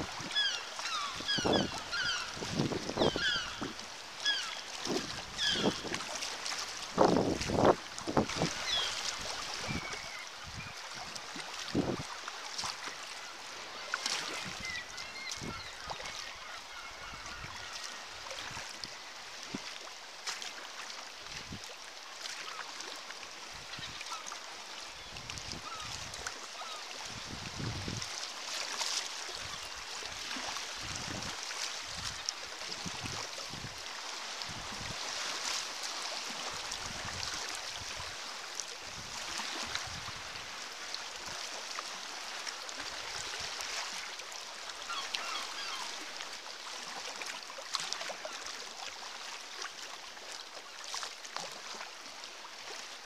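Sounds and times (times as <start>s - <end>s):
faint seabird calls: 0.1s - 5.9s, 14.5s - 18.4s, 25.6s - 27.0s, 44.8s - 46.0s
wind buffeting microphone: 27.2s - 28.0s.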